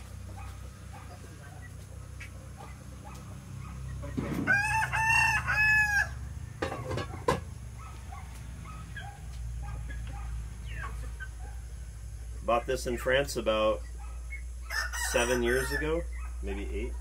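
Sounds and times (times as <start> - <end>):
rooster crowing: 4.3 - 6.4, 14.6 - 16.1.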